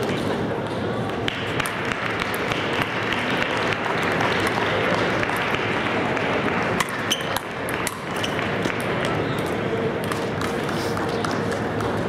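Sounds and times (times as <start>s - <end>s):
audience applauding: 1.8s - 6.8s.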